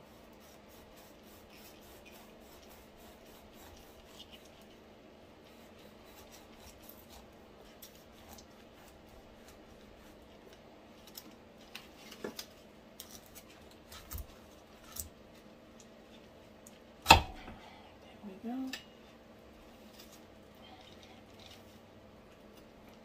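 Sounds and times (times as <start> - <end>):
faint steady hum: 0.0 - 23.0
knife crunching through pineapple rind: 5.5 - 10.3.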